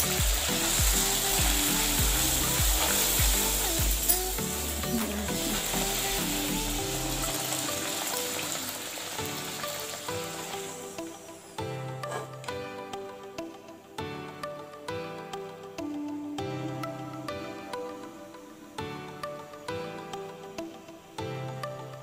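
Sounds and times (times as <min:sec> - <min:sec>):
deep-frying sizzle in oil: 0:00.0 - 0:04.3, 0:05.4 - 0:11.0
background music with a beat: 0:00.0 - 0:22.0.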